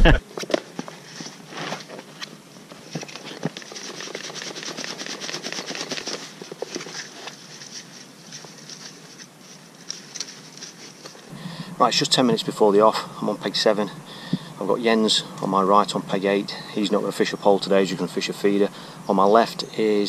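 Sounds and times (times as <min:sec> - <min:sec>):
hands rubbing gritty bait: 0:02.8 - 0:12.2.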